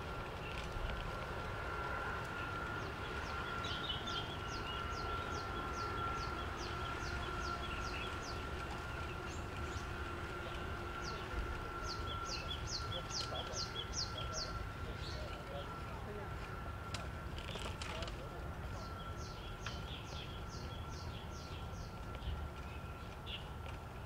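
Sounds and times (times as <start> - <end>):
faint steady tone: 0.0 - 24.0
songbird chirping: 2.4 - 15.9, 18.7 - 23.5.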